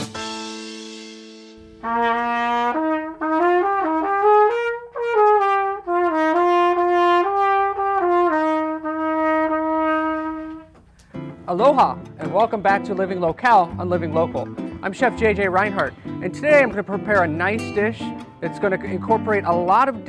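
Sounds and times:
trumpet solo: 1.7 - 10.8.

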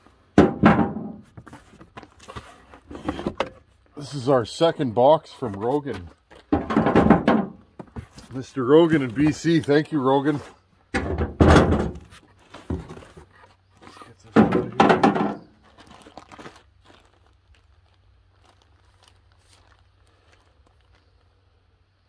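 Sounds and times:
cardboard box knocks and scrapes: 11.3 - 13.5
plastic bag crinkling: 15.6 - 21.6.

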